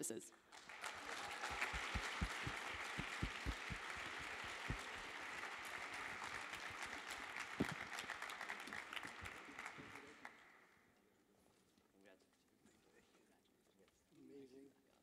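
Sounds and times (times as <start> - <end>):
audience applauding: 0.6 - 10.5.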